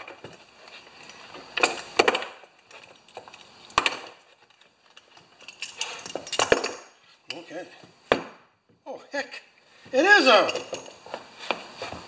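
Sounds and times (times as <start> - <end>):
metal tools clinking on workbench: 4.4 - 7.5, 10.2 - 11.1.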